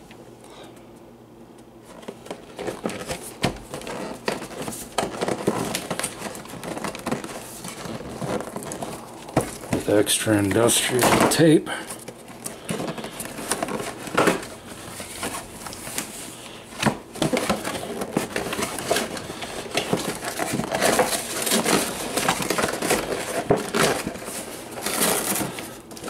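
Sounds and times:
cardboard and plastic rustling: 1.8 - 26.0.

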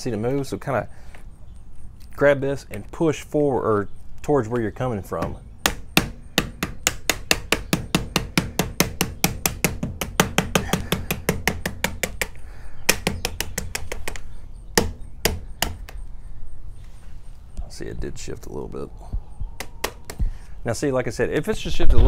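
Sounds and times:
mallet knocking: 5.2 - 14.2, 14.8 - 16.0.

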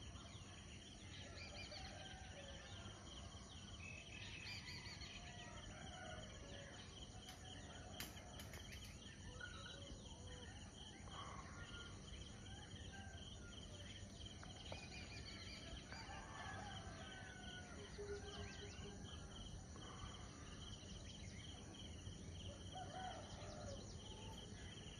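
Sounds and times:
insects chirring: 1.2 - 24.9.

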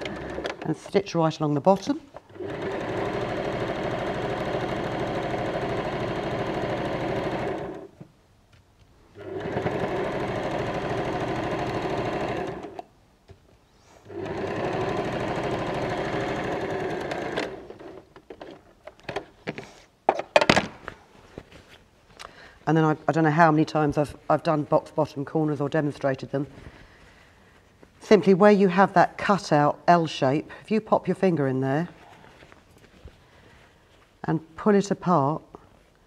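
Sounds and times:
sewing machine stitching: 0.0 - 1.0, 2.1 - 8.0, 9.2 - 12.8, 14.1 - 18.1
handling clicks and rustles: 17.1 - 22.2.

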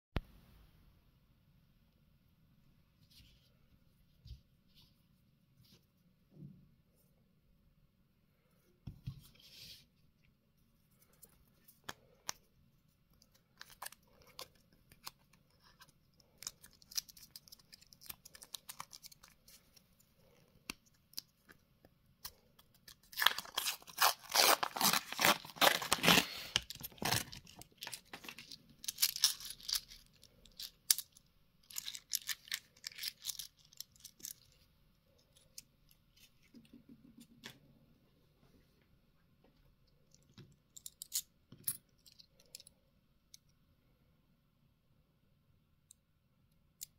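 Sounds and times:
paper wrapper tearing and crinkling: 22.8 - 31.0.

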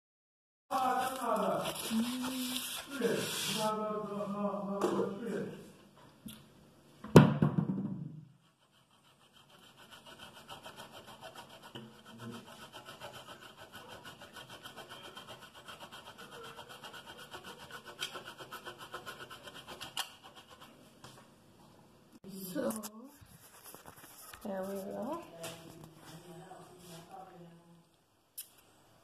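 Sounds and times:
cheese grating on metal grater: 0.7 - 3.8, 8.7 - 20.7
loud knock: 7.0 - 8.2.

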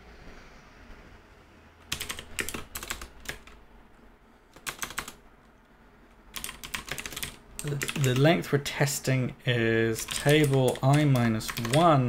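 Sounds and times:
typing on keyboard: 1.9 - 3.6, 4.6 - 5.2, 6.3 - 8.2, 10.0 - 12.0.

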